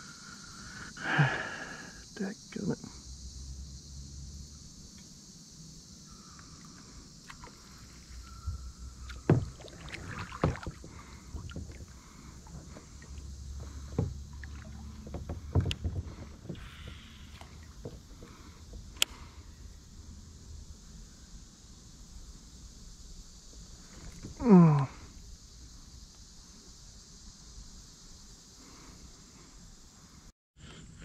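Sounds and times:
knocks and thumps from kayak: 0:07.2 - 0:18.9.

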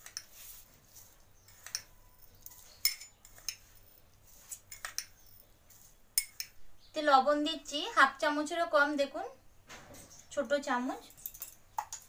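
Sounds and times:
metal spoon clinking on dishes: 0:00.0 - 0:00.3, 0:01.4 - 0:03.9, 0:04.7 - 0:05.4, 0:06.2 - 0:06.6, 0:11.0 - 0:12.0.

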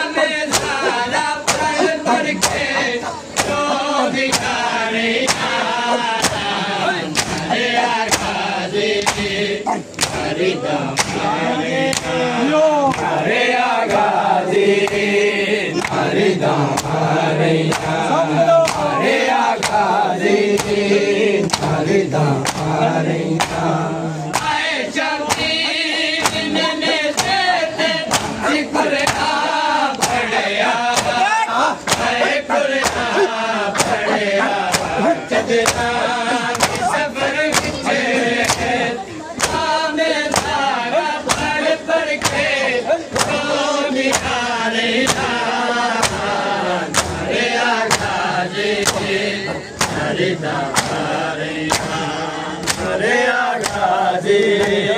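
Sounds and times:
men chanting: 0:00.0 - 0:54.9
hands slapping chests: 0:00.1 - 0:12.2, 0:12.8 - 0:13.2, 0:14.8 - 0:15.1, 0:15.8 - 0:16.1, 0:16.7 - 0:17.0, 0:17.6 - 0:18.0, 0:18.6 - 0:21.8, 0:22.4 - 0:23.7, 0:24.3 - 0:38.8, 0:39.4 - 0:48.2, 0:48.8 - 0:53.0, 0:53.6 - 0:54.8.

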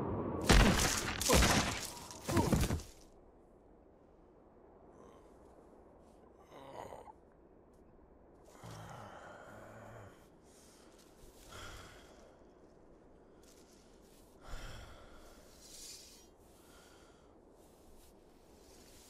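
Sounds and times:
man breathing and sighing: 0:08.4 - 0:19.0.

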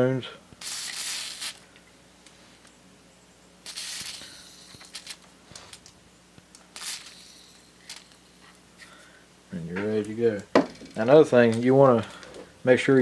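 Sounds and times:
aerosol spray hissing: 0:00.6 - 0:01.6, 0:03.6 - 0:05.2, 0:06.7 - 0:08.4.

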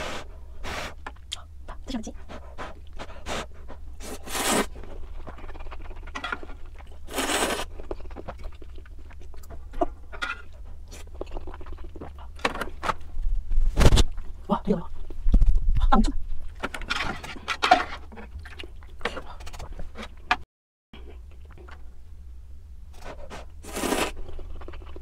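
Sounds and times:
low steady hum: 0:00.0 - 0:20.4, 0:21.0 - 0:25.0
noodle slurping: 0:03.2 - 0:04.7, 0:07.0 - 0:08.6, 0:23.6 - 0:24.3
chewing and mouth clicks: 0:04.8 - 0:12.4, 0:18.1 - 0:19.8.

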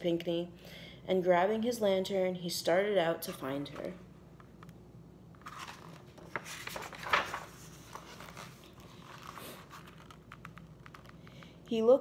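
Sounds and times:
paper crackle: 0:05.4 - 0:11.6
paper pages rustling: 0:05.4 - 0:11.6.

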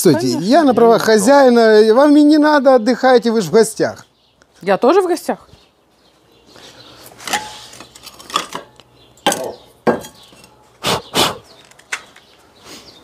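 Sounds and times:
plates and cutlery clattering: 0:07.2 - 0:10.6.

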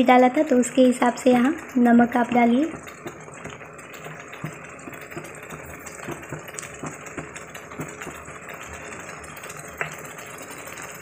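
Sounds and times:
masala sizzling in oil: 0:00.0 - 0:11.0
oil popping and spitting: 0:02.2 - 0:11.0.

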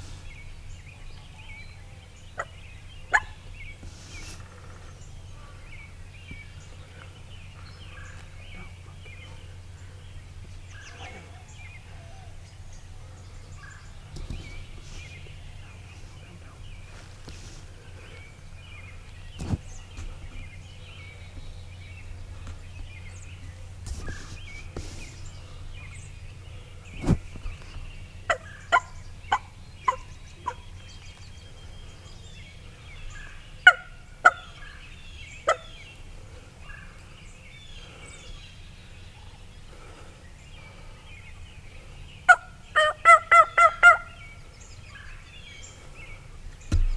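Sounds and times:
wild turkeys calling: 0:02.3 - 0:06.0, 0:27.3 - 0:46.8.

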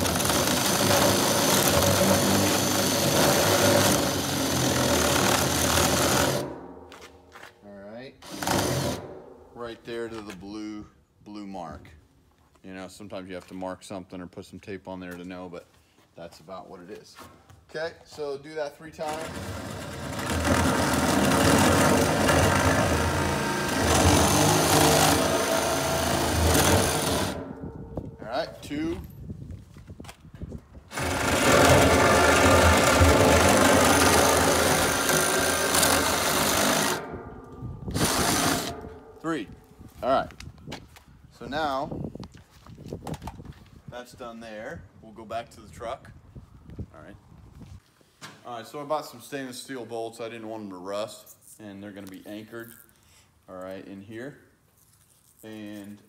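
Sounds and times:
bit scraping into wood: 0:19.0 - 0:27.6, 0:30.9 - 0:37.1
drill motor whine: 0:20.1 - 0:27.4, 0:30.9 - 0:37.1.

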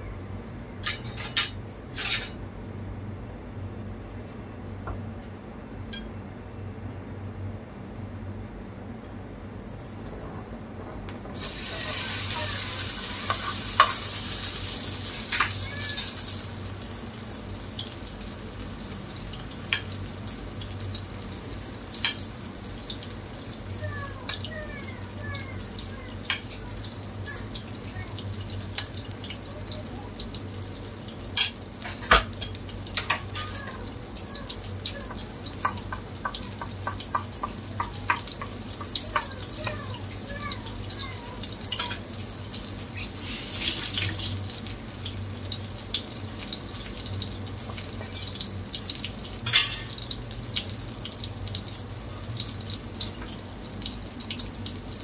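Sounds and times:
eggplant frying in hot oil: 0:11.2 - 0:55.0.

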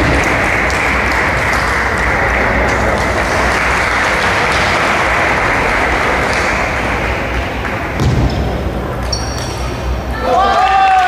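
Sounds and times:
spectators applauding: 0:00.0 - 0:08.0, 0:10.4 - 0:11.0
low thump: 0:07.9 - 0:08.7.

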